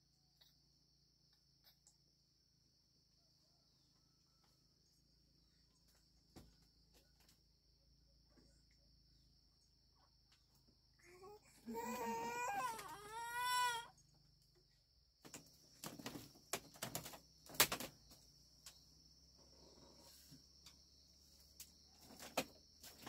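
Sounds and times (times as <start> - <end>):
high insect drone: 0.1 - 23.0
child crying: 11.0 - 13.9.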